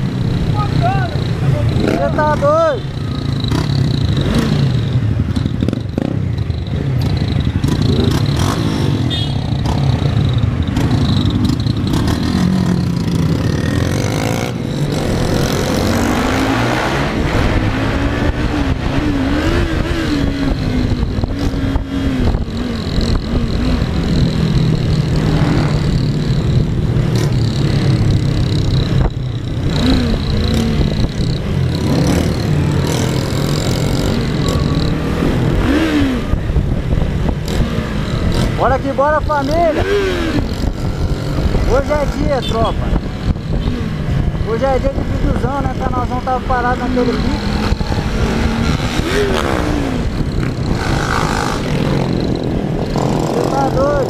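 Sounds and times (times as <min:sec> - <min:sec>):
motorcycle engine revving: 0:00.0 - 0:54.0
wind noise on microphone: 0:14.8 - 0:38.6, 0:39.2 - 0:54.0.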